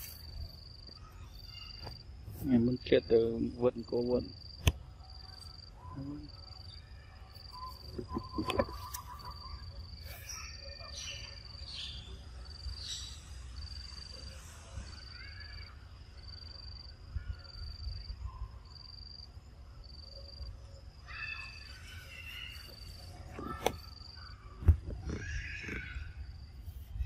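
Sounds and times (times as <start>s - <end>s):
insect chirping: 0.0s - 27.0s.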